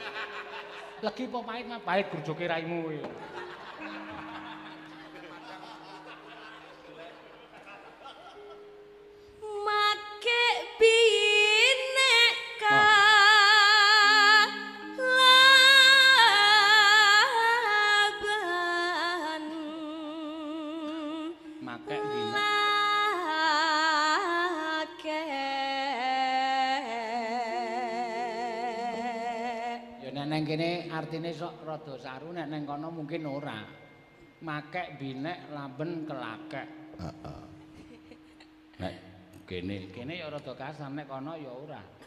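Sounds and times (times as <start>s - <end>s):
woman singing with vibrato: 9.4s - 30.0s.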